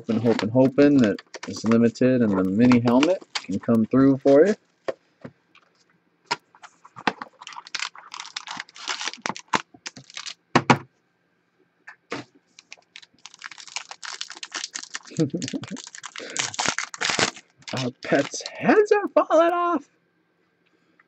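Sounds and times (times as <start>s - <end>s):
foil pack crinkling: 0.0s - 4.6s, 6.6s - 10.4s, 12.5s - 18.6s.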